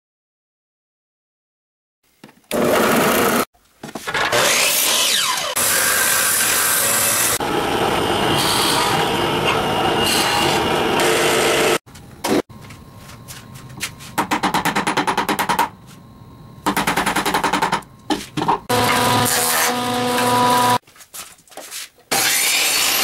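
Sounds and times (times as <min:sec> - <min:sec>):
power saw cutting wood: 0:02.5 - 0:03.5, 0:04.1 - 0:11.8, 0:18.7 - 0:20.8, 0:22.1 - 0:23.0
wood lathe humming: 0:04.4 - 0:11.8.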